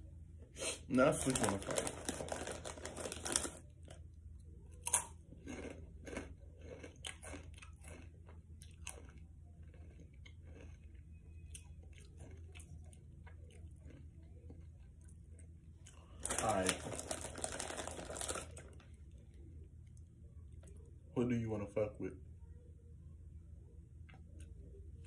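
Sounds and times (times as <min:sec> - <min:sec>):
person chewing crunchy chips: 0:01.1 - 0:04.0, 0:04.8 - 0:18.9.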